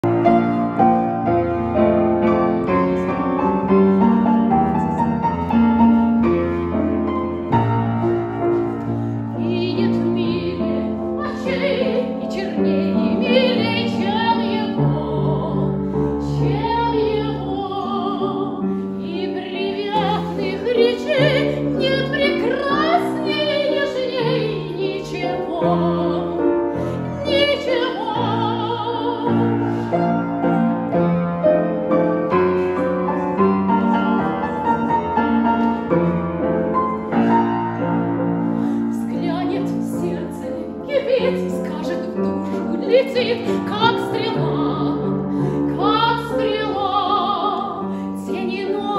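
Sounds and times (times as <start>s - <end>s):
piano: 0.0s - 48.9s
woman singing operatically: 9.4s - 26.3s, 27.2s - 29.5s, 38.9s - 45.1s, 45.7s - 48.9s.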